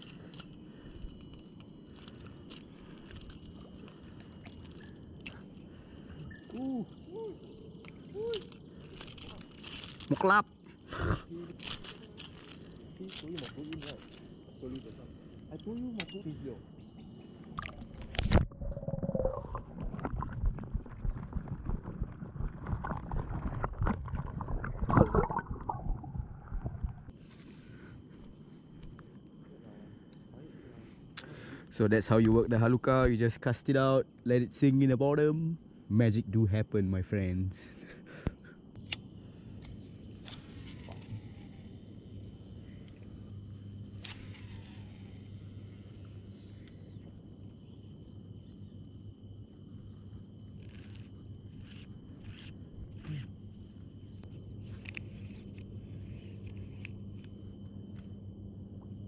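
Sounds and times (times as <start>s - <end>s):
muffled underwater sloshing: 17.7s - 27.1s.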